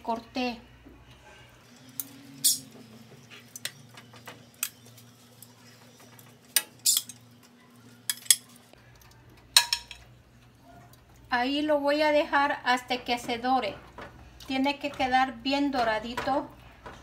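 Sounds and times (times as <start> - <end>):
metal tongs clinking on pan: 2.0 - 2.7, 8.1 - 8.5, 9.6 - 10.1.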